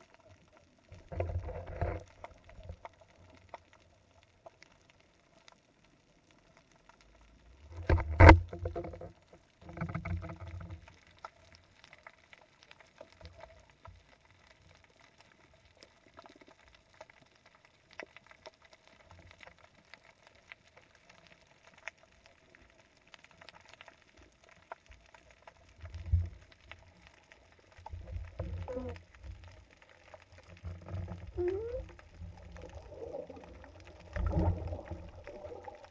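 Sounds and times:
underwater clicks and crackle: 0.0 - 35.9
underwater rumbling: 0.0 - 35.9
dull underwater thumps and knocks: 7.7 - 10.7.

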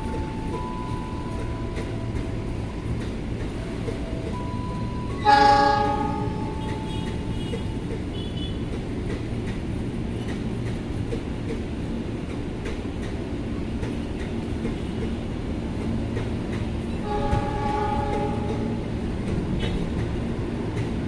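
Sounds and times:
train coaches rumbling: 0.0 - 21.0
train horn blast: 5.0 - 8.6, 17.0 - 18.9.

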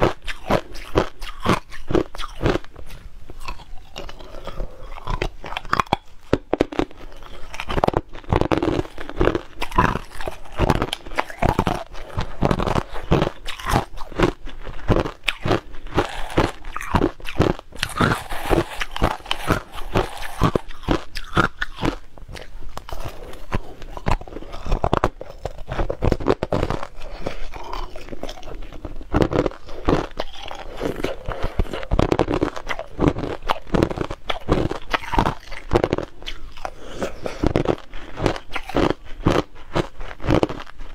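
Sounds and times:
ice crunching between teeth: 0.0 - 40.9.

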